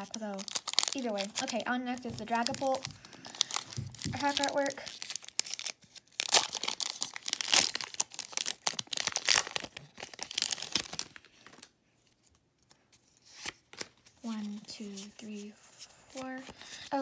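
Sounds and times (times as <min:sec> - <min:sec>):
foil wrapper crinkling and tearing: 0:00.0 - 0:11.7.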